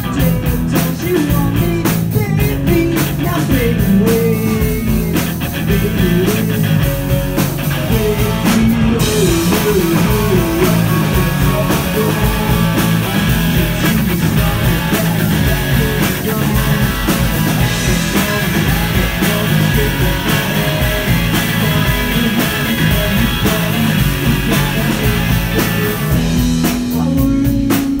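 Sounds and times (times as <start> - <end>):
live rock band playing: 0.0 - 28.0.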